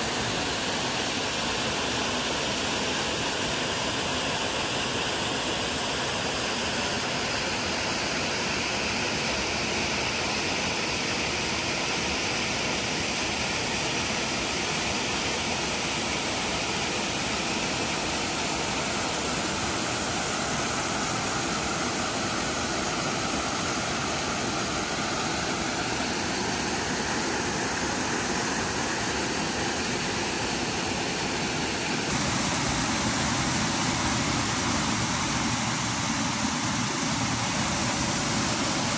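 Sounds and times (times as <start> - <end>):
waterfall rushing: 17.8 - 38.9.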